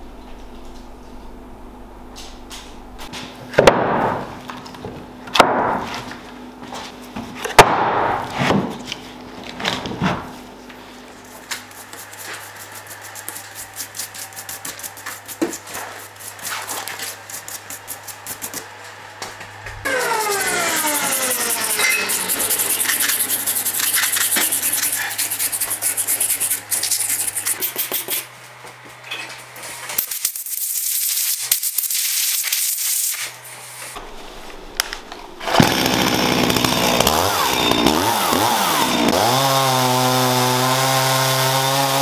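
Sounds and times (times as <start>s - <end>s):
stiff brush scrubbing bark: 11.6s - 18.7s, 20.1s - 28.2s.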